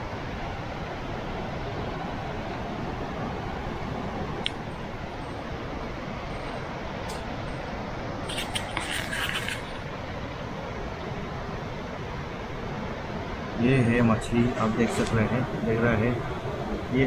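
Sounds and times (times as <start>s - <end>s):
river flowing: 0.0s - 17.0s
rustle and crackle: 8.2s - 10.1s.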